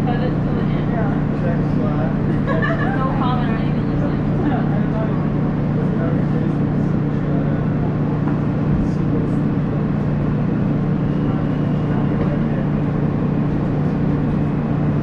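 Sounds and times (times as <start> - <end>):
subway car wheels rumbling on rails: 0.0 - 15.0.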